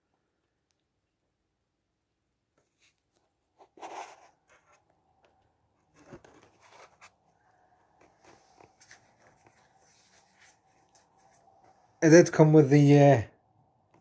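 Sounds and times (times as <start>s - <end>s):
camera handling rustles: 5.9s - 7.2s.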